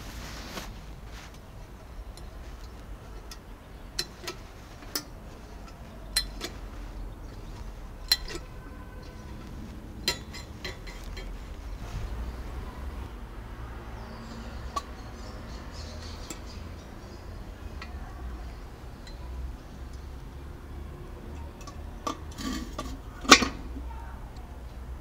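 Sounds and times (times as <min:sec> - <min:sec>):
metal stove door clinking: 0:08.0 - 0:08.5, 0:10.0 - 0:11.3, 0:21.6 - 0:23.8.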